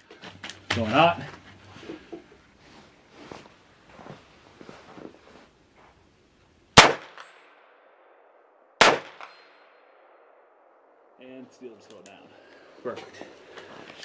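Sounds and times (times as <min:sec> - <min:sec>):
bullet striking steel target: 0:06.8 - 0:08.2, 0:08.8 - 0:10.3
rifle shots: 0:06.8 - 0:10.8.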